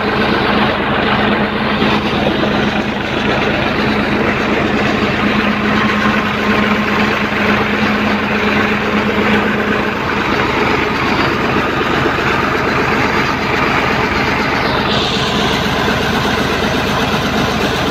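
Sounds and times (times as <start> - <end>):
tractor diesel engine running: 0.0 - 17.9
water rushing from pipe: 0.0 - 17.9.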